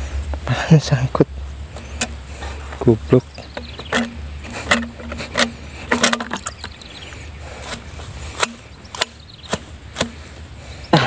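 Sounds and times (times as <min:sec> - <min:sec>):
trap knocking against plastic bucket: 0:03.5 - 0:06.8.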